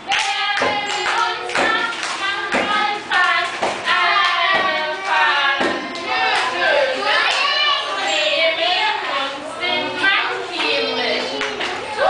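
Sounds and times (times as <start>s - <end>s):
children singing together: 0.0s - 12.0s
hand claps: 0.1s - 6.5s.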